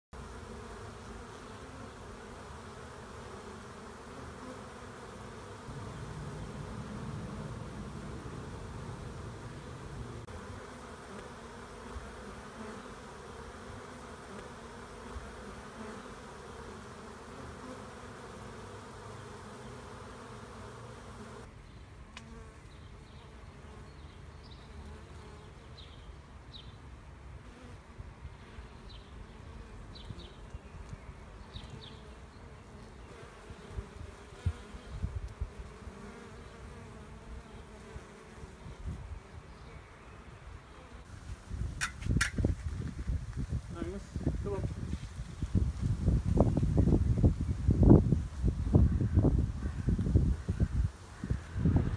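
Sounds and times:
bees buzzing: 0.2 - 21.5, 31.5 - 41.1.

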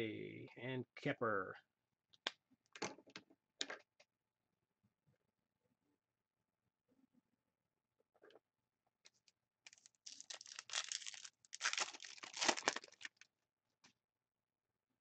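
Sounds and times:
wrapper tearing and crinkling: 9.7 - 13.2.

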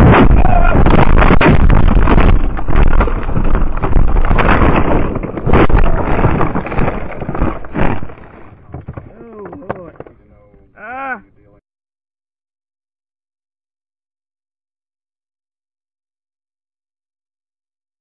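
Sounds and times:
storm wind buffeting microphone: 0.0 - 8.8
knocks and bangs: 0.0 - 10.2.

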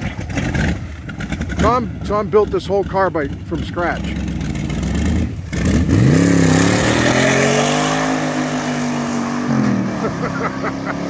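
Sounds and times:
car engine revving hard: 4.0 - 11.0.

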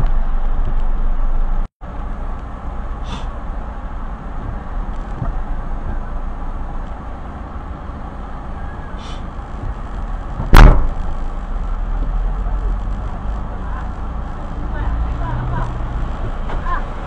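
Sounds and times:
car engine rumble: 0.0 - 17.0
road noise inside car: 0.0 - 17.0
loud sharp thump: 10.4 - 11.1.

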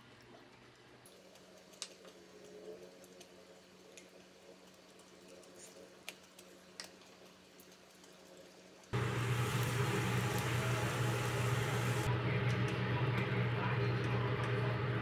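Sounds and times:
low hum: 9.0 - 15.0.

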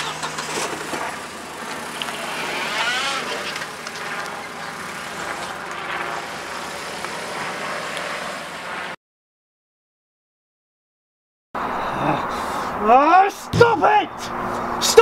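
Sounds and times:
tyre noise: 0.0 - 7.2
car pulling away: 0.0 - 9.0.

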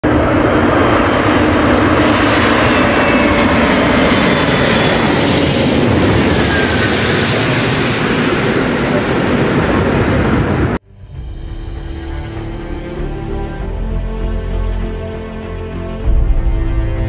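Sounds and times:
jet engine noise: 0.0 - 10.8.

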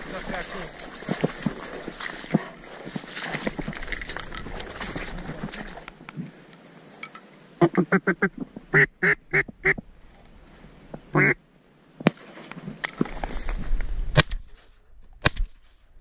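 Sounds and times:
duck quacking: 7.6 - 9.8, 11.1 - 11.4.

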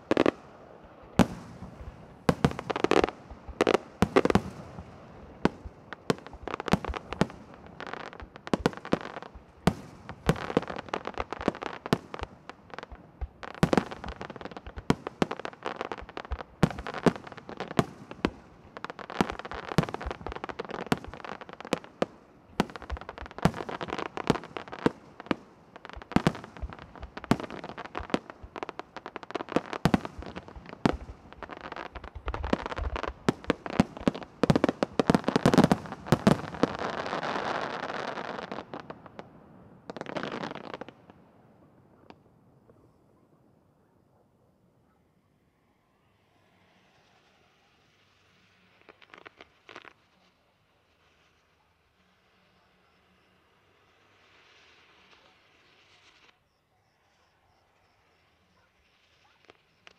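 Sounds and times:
firework pops and crackle: 0.0 - 39.3, 39.9 - 41.2, 48.4 - 50.4, 58.5 - 59.9.

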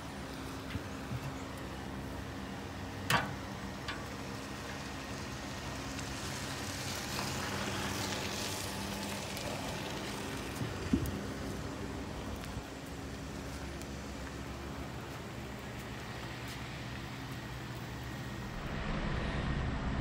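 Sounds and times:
hot charcoal hissing: 0.0 - 18.7
steady low hum: 10.6 - 20.0.

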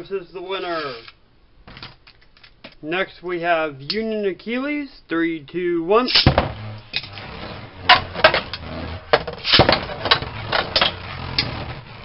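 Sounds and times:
launcher rip: 6.1 - 7.1, 9.3 - 11.4.

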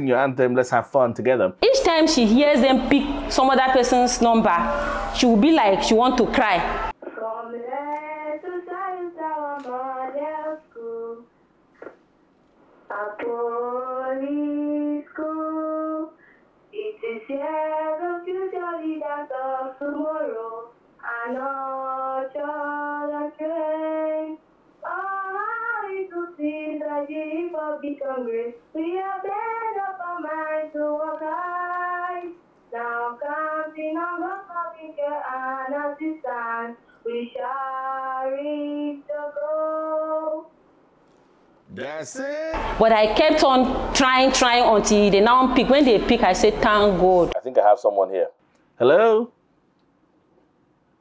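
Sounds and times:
girl singing over a phone line: 1.6 - 11.3, 12.9 - 40.6.

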